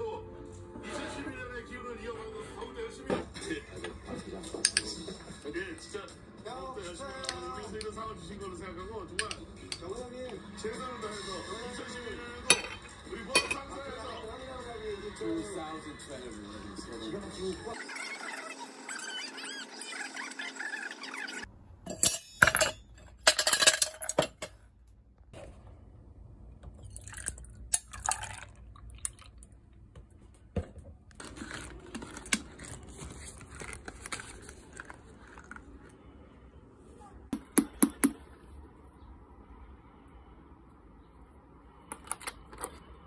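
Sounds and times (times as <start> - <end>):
dishes and cutlery clinking: 3.8 - 5.2, 12.4 - 13.9, 21.9 - 24.6.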